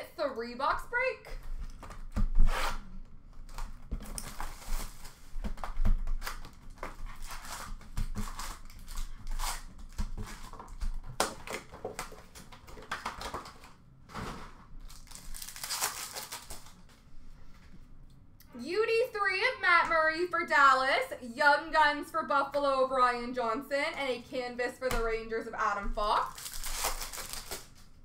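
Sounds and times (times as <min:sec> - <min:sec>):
plastic wrap crinkling and tearing: 0:03.4 - 0:17.0, 0:26.2 - 0:28.0.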